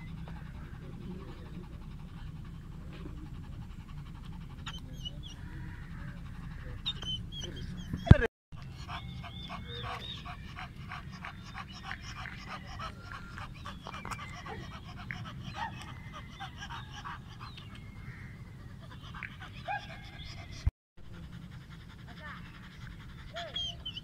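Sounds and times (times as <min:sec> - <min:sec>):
dog panting: 0:00.0 - 0:24.0.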